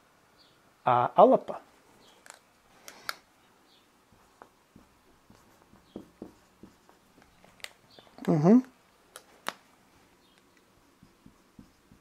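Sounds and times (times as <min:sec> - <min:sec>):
marker writing on a board: 0:04.1 - 0:08.1, 0:10.2 - 0:12.0.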